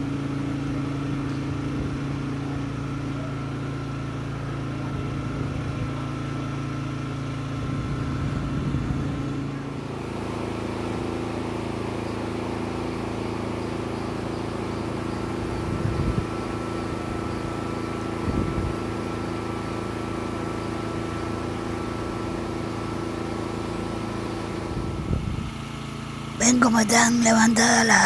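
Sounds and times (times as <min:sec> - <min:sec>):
engine idling: 0:00.0 - 0:28.0.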